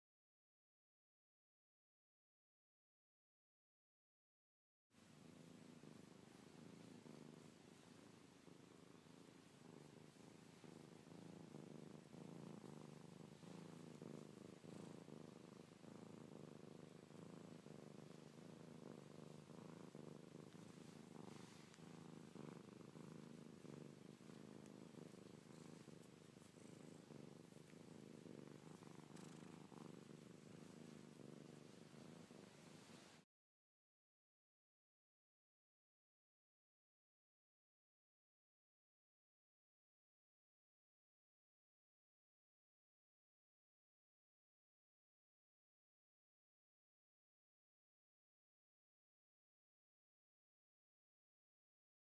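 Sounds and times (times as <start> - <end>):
cat purring: 5.0 - 33.3.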